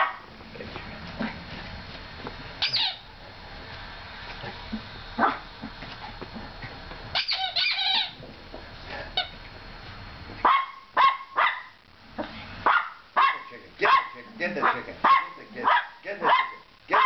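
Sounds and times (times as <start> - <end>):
small dog barking: 0.0 - 0.3, 5.2 - 5.4, 10.4 - 17.0.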